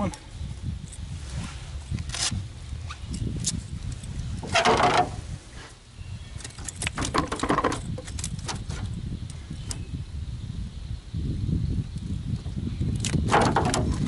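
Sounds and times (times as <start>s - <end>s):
camera handling rustle: 1.9s - 3.6s.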